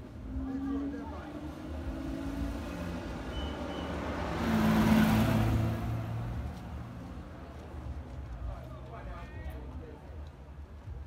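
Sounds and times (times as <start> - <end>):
vehicle driving past: 0.3 - 7.2.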